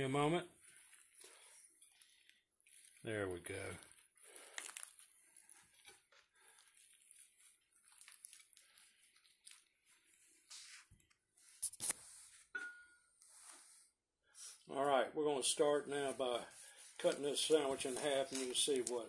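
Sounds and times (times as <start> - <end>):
bread crackling when squeezed: 0.6 - 10.1.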